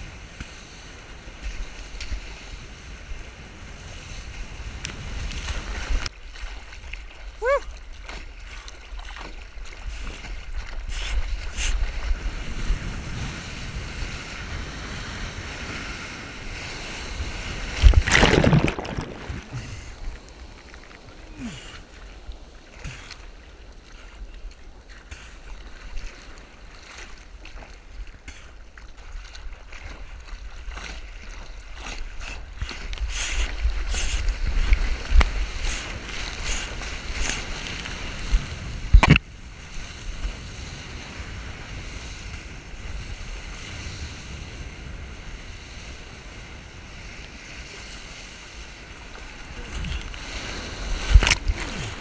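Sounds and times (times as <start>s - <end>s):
seawater sloshing and splashing: 0.6s - 39.2s
rush of whitewater: 9.6s - 24.2s, 47.0s - 52.0s.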